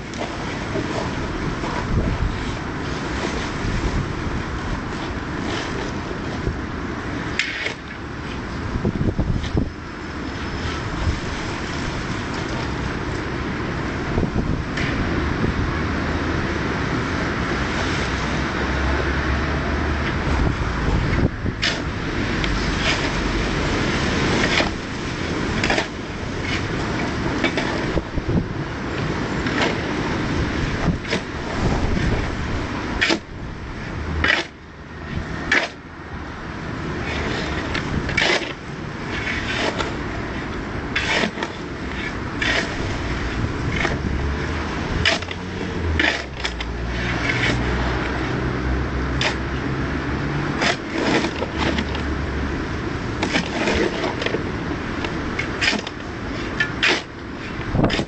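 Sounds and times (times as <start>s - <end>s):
stone and tools scraping: 41.0s - 42.8s, 46.0s - 47.7s.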